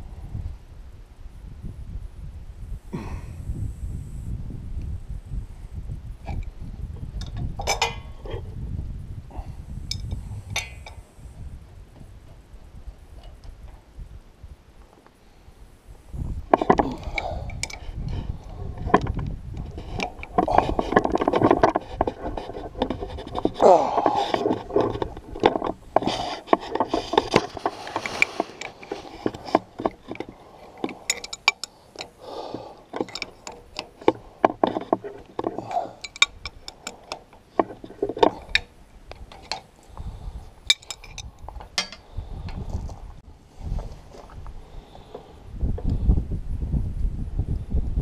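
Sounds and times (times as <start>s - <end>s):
wrench clicking and scraping on metal: 7.2s - 8.4s, 9.9s - 11.1s, 16.6s - 40.0s, 40.6s - 42.6s.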